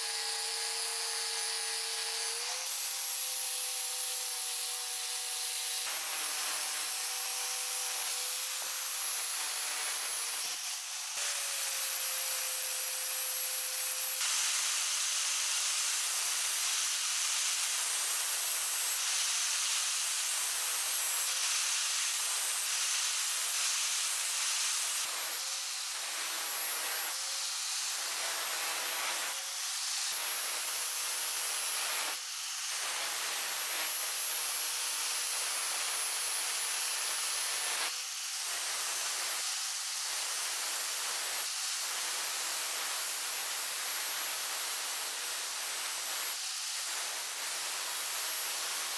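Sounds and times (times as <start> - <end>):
angle grinder sanding metal: 0.0 - 30.8.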